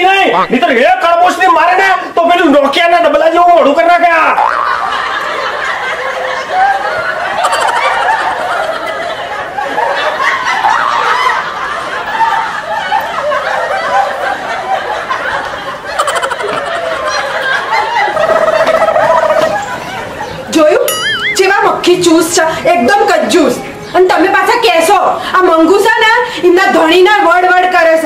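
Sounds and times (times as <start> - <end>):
laugh track: 4.3 - 21.7.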